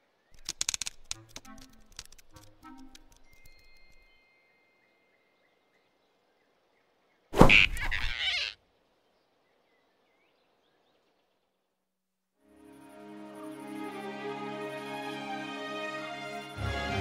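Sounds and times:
faint forest ambience: 0.0 - 17.0
cartoon whoosh falling in pitch: 7.4 - 8.6.

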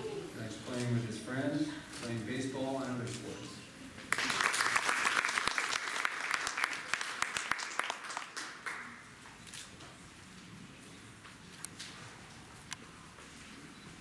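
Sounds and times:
audience applauding: 4.1 - 9.0.

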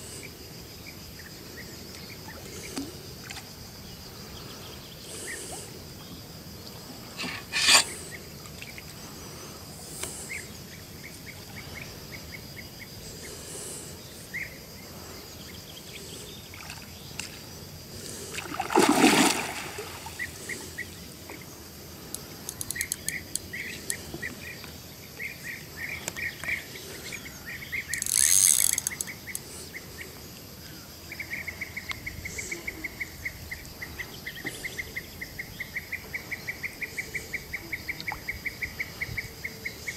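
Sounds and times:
insects chirping: 0.0 - 39.9
fish splashing in water: 18.4 - 20.3.

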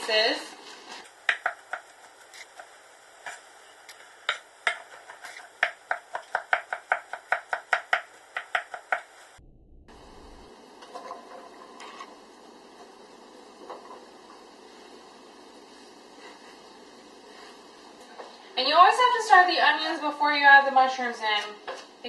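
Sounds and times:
steady hiss: 0.0 - 9.4, 11.7 - 19.8
knife chopping on wooden board: 1.3 - 2.7, 4.3 - 9.1.

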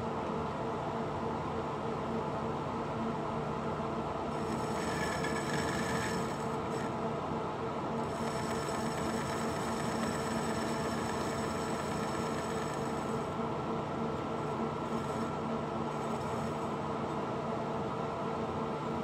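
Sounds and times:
metal lathe cutting: 4.3 - 7.0, 8.0 - 13.3, 14.3 - 16.8.

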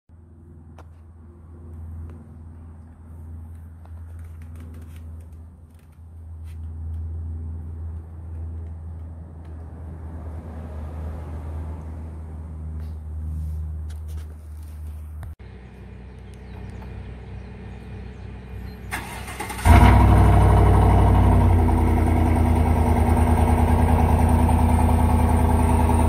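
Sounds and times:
light clicks and rustles: 2.9 - 7.1
engine idling: 15.4 - 26.0.

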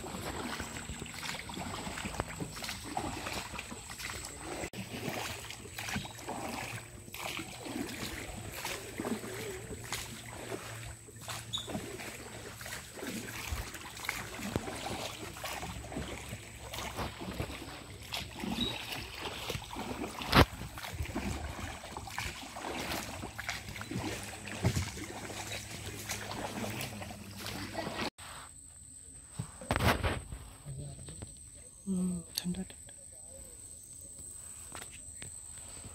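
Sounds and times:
oars dipping in water: 0.0 - 28.1.

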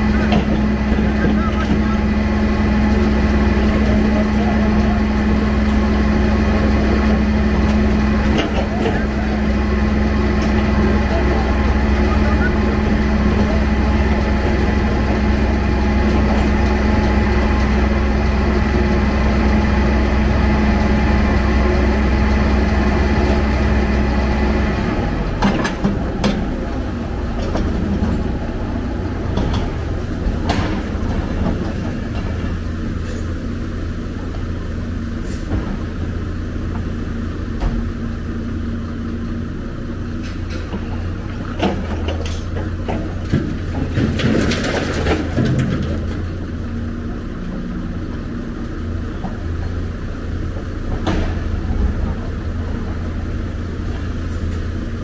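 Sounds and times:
excavator diesel engine running: 0.0 - 55.0
bucket and rubble clanking: 40.4 - 46.4.

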